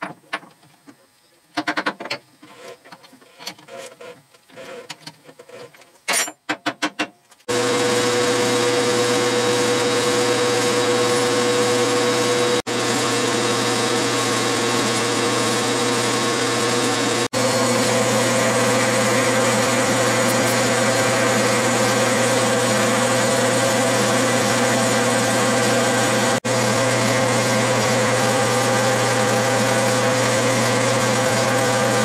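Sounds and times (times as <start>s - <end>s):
metal lathe running: 7.5s - 32.0s
turning tool cutting metal: 7.6s - 32.0s.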